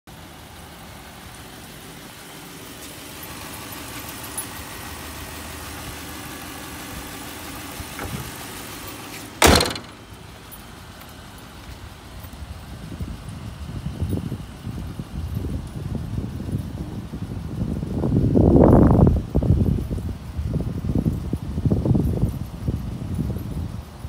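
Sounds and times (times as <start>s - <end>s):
car engine idling: 0.1s - 21.9s
car hood slamming: 7.8s - 10.1s.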